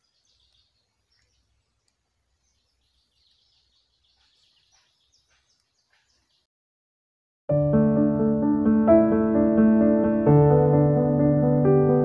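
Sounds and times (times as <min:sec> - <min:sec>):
faint bird chirps: 0:00.0 - 0:06.5.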